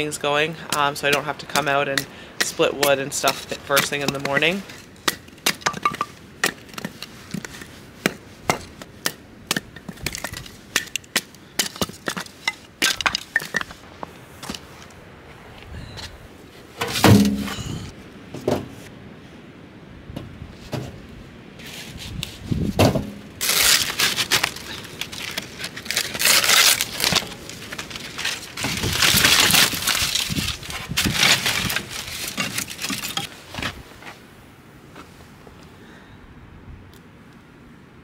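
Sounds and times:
sticks rustling and scraping: 0.0s - 18.9s, 21.6s - 34.2s
paper crumpling: 23.4s - 33.2s.

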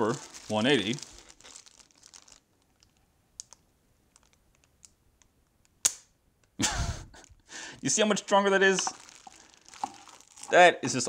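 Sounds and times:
plastic bag crinkling: 0.0s - 4.8s, 7.9s - 11.0s.

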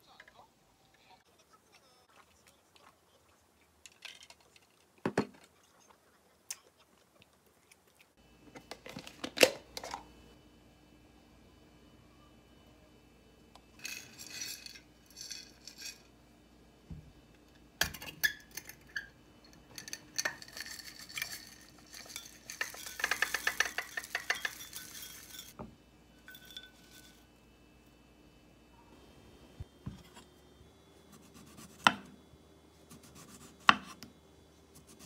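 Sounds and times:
spoon scraping glass bowl: 19.8s - 25.6s, 26.2s - 27.3s.

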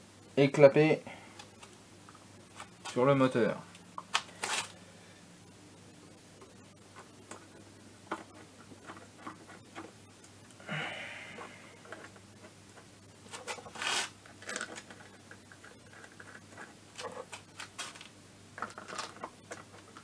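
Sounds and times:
small metal parts clicking and scraping: 13.3s - 16.4s, 17.0s - 19.9s.

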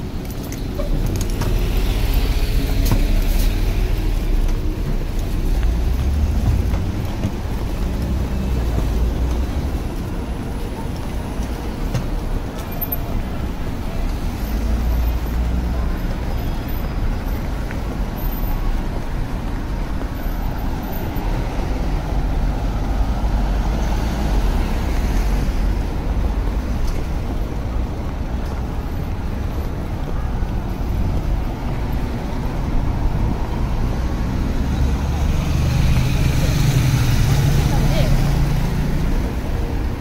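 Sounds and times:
low rumble of street traffic: 0.0s - 40.0s
vehicle passing: 29.9s - 40.0s.

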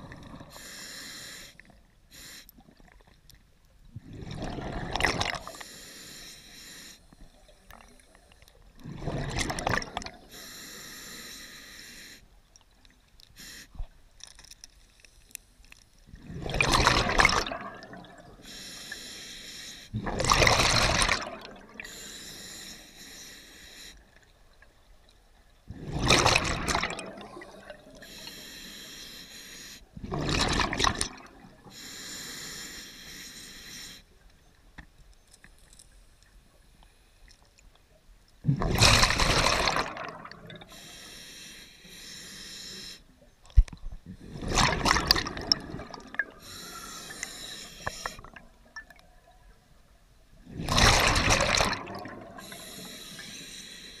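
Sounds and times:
hissing regulator inhale: 0.0s - 2.6s, 5.5s - 7.2s, 10.3s - 12.3s, 13.4s - 13.8s, 18.4s - 19.9s, 21.8s - 24.1s, 28.0s - 29.9s, 31.7s - 34.1s, 40.6s - 43.1s, 46.4s - 48.3s, 52.4s - 54.0s.

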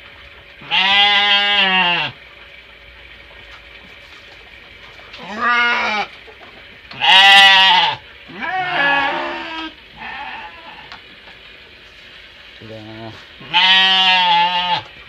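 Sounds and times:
sheep bleating: 0.6s - 2.2s, 5.2s - 6.1s, 7.0s - 10.9s, 13.4s - 14.9s.

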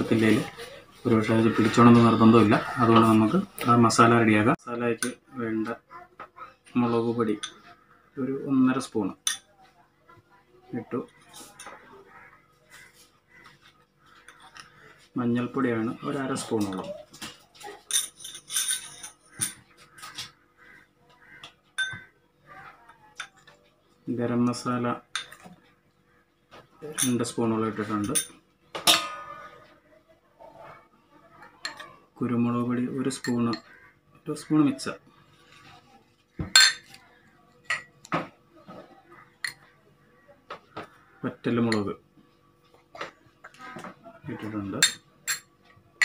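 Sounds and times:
spoon clinking against bowls: 7.2s - 7.7s, 9.1s - 9.5s, 16.6s - 20.3s, 21.2s - 23.6s, 24.5s - 25.7s, 26.9s - 29.5s, 31.6s - 31.9s, 33.1s - 33.8s, 36.4s - 38.1s, 39.4s - 39.7s, 41.6s - 42.0s, 44.4s - 45.8s.

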